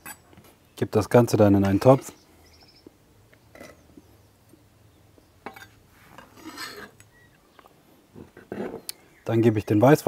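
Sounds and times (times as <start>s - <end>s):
knife scraping on cutting board: 6.2s - 7.0s.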